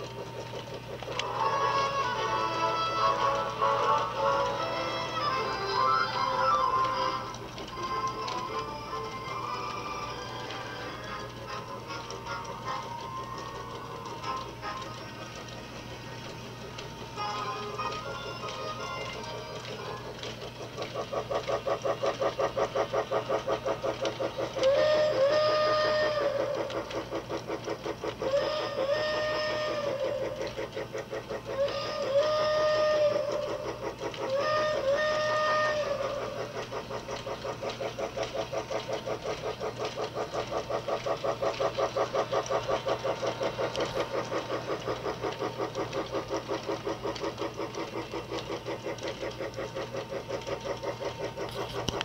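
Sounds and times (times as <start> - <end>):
toy train chugging: 0.0 - 52.0
electronic train whistle toot: 1.1 - 15.6, 16.7 - 20.4, 24.2 - 27.1, 28.1 - 38.3.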